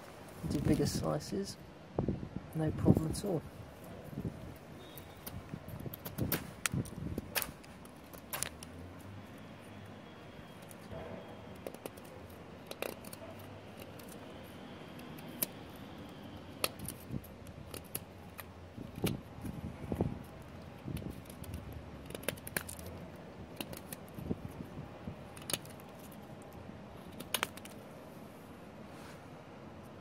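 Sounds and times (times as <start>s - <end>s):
knife shaving wood: 10.5s - 27.9s.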